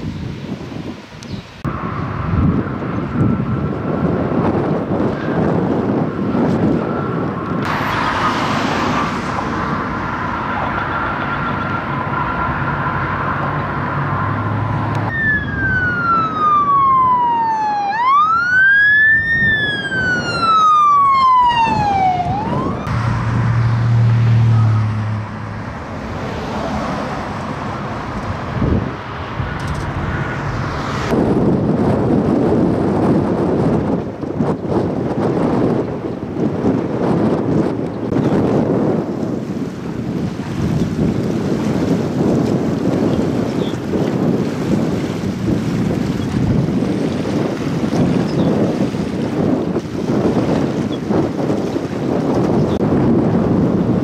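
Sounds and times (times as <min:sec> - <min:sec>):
ambulance siren wailing: 0:06.7 - 0:25.2
vehicle engine passing: 0:07.6 - 0:16.9, 0:21.3 - 0:31.9.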